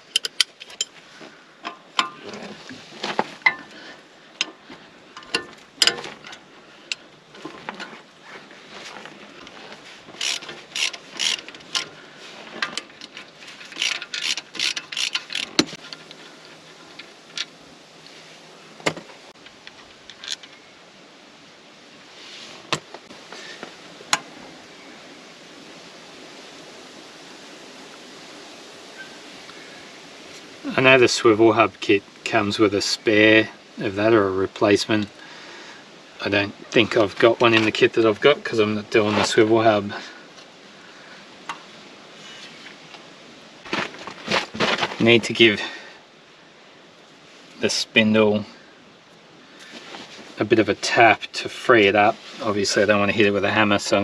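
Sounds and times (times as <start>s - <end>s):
metal clicks and clinks: 0.0s - 1.0s, 5.2s - 7.0s, 10.2s - 11.9s, 12.6s - 17.6s
rapid ratchet clicking: 10.2s - 11.9s, 13.7s - 15.7s.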